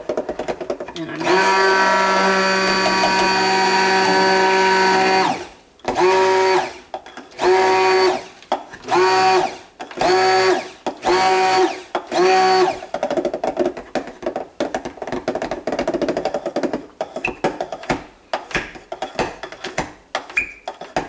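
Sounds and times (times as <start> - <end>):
stick blender motor whine: 1.1 - 12.8.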